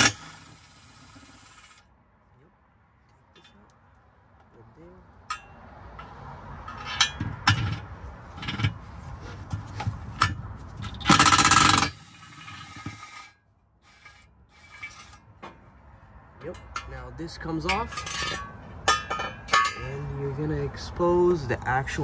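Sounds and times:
metal bracket scraping: 0:06.0 - 0:15.7, 0:17.6 - 0:20.0
impact wrench hammering: 0:11.0 - 0:13.1.

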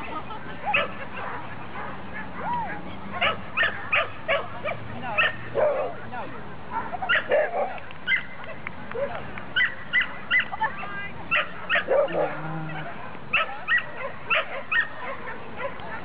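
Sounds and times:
dog barking in high yaps: 0:02.4 - 0:05.9, 0:06.8 - 0:08.6, 0:09.6 - 0:10.7, 0:11.3 - 0:15.8.

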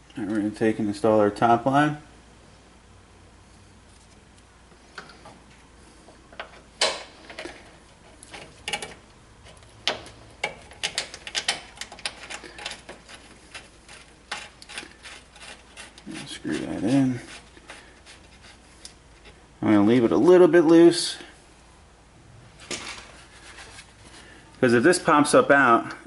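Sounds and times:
hand tools clicking on metal: 0:08.2 - 0:17.0.

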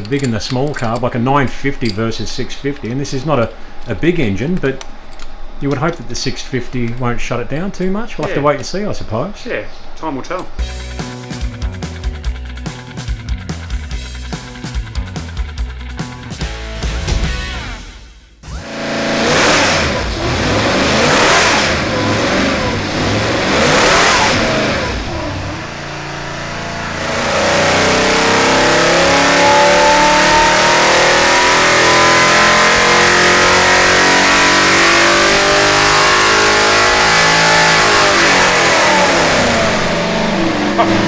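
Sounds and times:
engine revving: 0:10.6 - 0:41.0.

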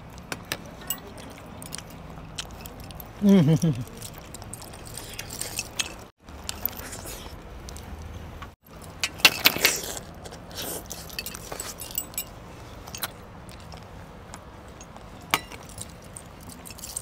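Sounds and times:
chewing and mouth sounds: 0:00.0 - 0:08.1, 0:09.6 - 0:17.0
metal clinking on steel dishes: 0:15.2 - 0:17.0.

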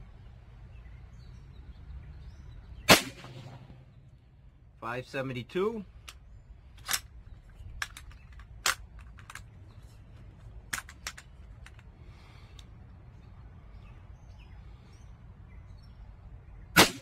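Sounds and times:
air pistol action clicks: 0:06.8 - 0:09.5, 0:10.4 - 0:11.9.

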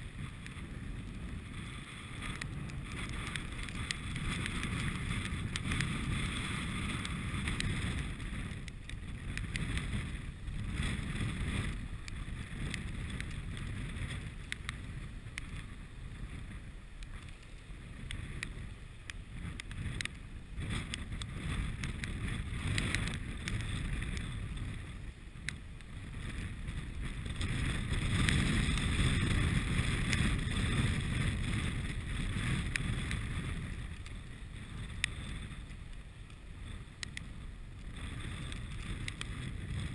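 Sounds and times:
wind buffeting microphone: 0:00.0 - 0:39.9
faint clicks: 0:02.2 - 0:16.4, 0:17.0 - 0:24.8, 0:32.3 - 0:34.2, 0:34.8 - 0:39.9.

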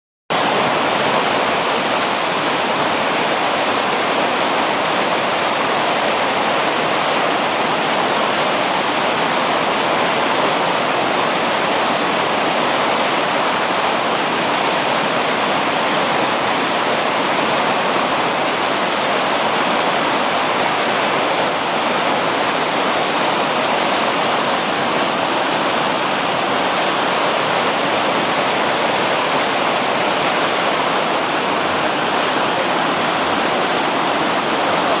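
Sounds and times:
white water rushing over weir: 0:00.3 - 0:35.0.

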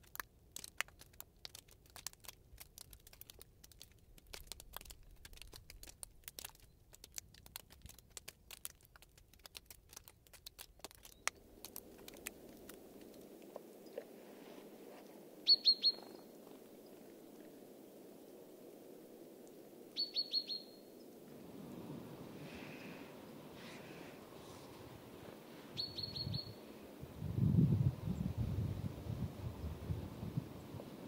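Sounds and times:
melting ice crackling: 0:00.0 - 0:19.7
faint steady hiss: 0:00.0 - 0:31.0
bird chirping: 0:15.4 - 0:17.0, 0:20.0 - 0:21.1, 0:25.8 - 0:26.7.

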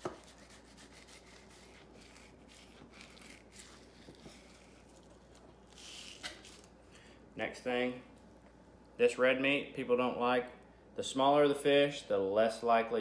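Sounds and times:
knife scraping fish skin: 0:00.0 - 0:06.7.

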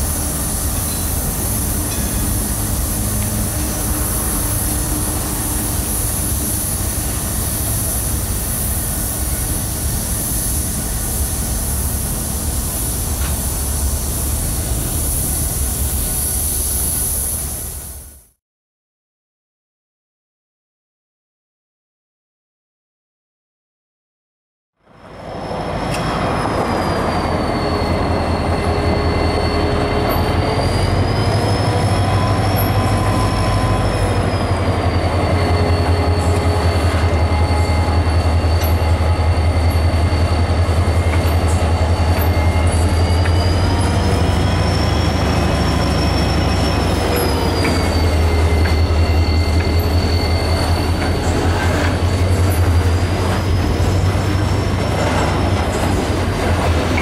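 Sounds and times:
wheel flanges squealing: 0:25.2 - 0:57.0.

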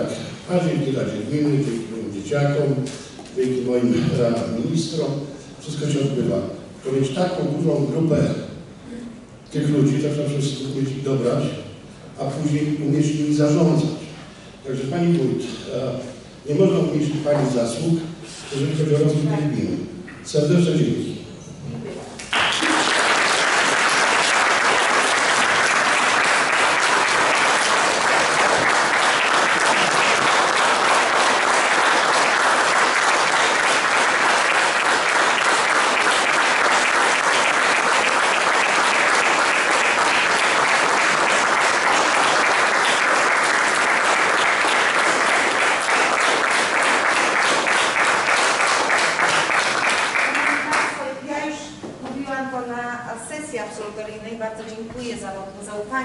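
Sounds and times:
audience applauding: 0:22.3 - 0:51.0.

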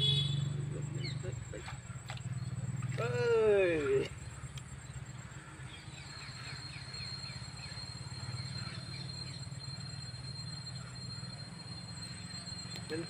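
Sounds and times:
insect trilling: 0:00.4 - 0:13.0
bird chirps: 0:05.6 - 0:13.0.

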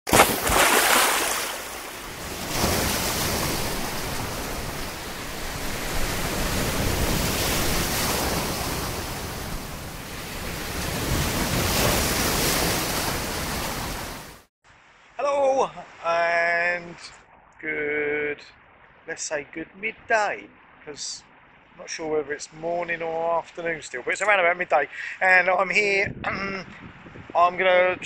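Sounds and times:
sea waves breaking: 0:00.1 - 0:14.5.

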